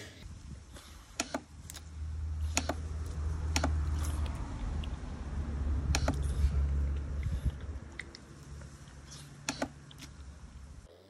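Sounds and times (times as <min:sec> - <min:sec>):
steady low rumble: 0:00.2 - 0:10.9
sharp plastic clicks: 0:01.2 - 0:01.9, 0:02.5 - 0:03.9, 0:05.8 - 0:06.2, 0:09.4 - 0:09.8.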